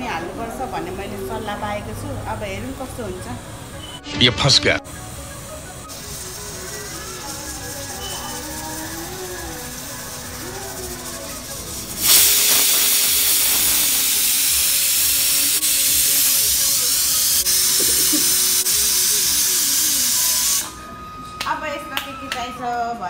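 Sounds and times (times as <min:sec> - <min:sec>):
pressure cooker steam hissing: 0:04.9 - 0:20.9.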